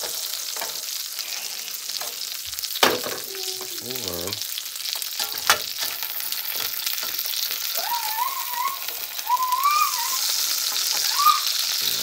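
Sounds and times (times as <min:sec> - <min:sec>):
meat sizzling in a frying pan: 0:00.0 - 0:12.0
wavering whistle-like tone: 0:07.8 - 0:11.6.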